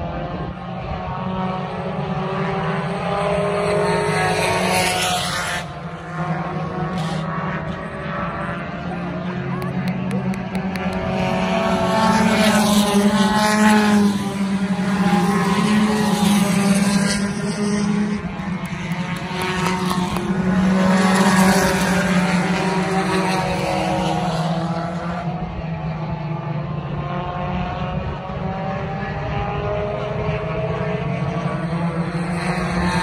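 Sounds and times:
race car engines at high revs: 0:00.0 - 0:33.0.

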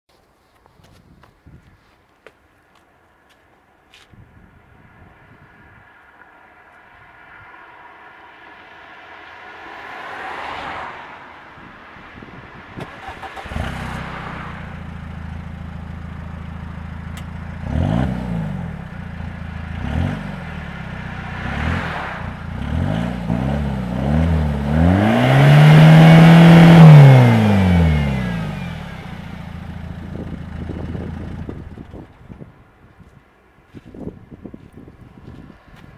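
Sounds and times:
diesel engine revving: 0:12.8 - 0:32.2
engine idling: 0:27.3 - 0:32.6.

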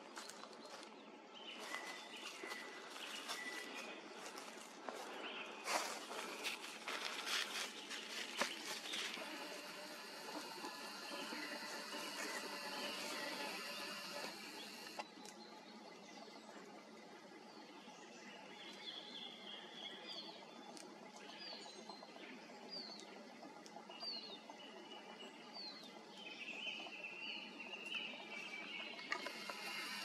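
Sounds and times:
background hiss: 0:01.4 - 0:15.0.

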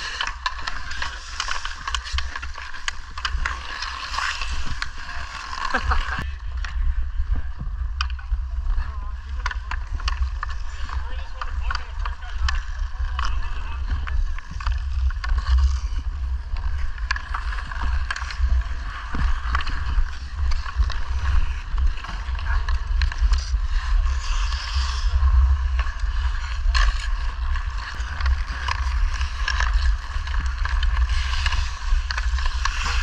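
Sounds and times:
stick and puck taps: 0:00.0 - 0:04.9, 0:09.3 - 0:15.7
skates scraping on ice: 0:00.0 - 0:33.0
wind rumble on microphone: 0:06.0 - 0:33.0.

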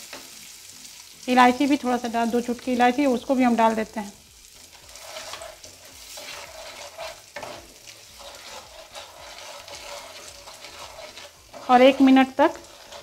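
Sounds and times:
food sizzling in hot fat: 0:00.0 - 0:13.0
spatula stirring and scraping: 0:04.2 - 0:13.0.

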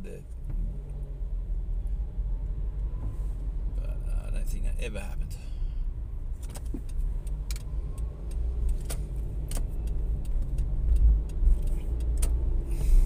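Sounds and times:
car engine and road rumble: 0:00.0 - 0:13.0
clicks and rattles in car: 0:06.4 - 0:08.0, 0:08.6 - 0:12.4.

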